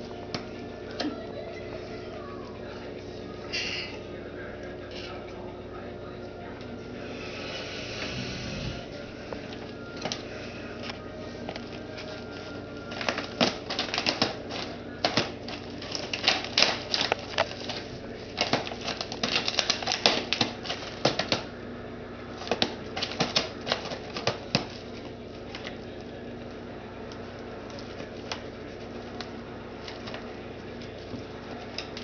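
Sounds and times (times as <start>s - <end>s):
plastic bag crinkling: 9.0s - 21.5s, 27.1s - 32.0s.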